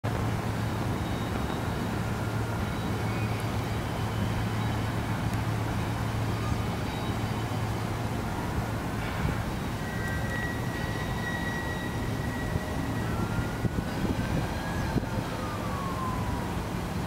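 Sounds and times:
highway traffic: 0:00.0 - 0:17.0
locomotive diesel engines humming: 0:00.0 - 0:17.0.

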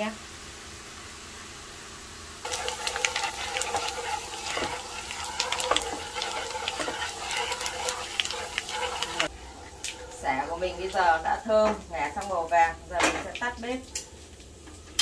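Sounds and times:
lemongrass sizzling in hot oil: 0:00.0 - 0:09.4, 0:10.1 - 0:13.8
chopsticks stirring in pan: 0:02.4 - 0:12.5.

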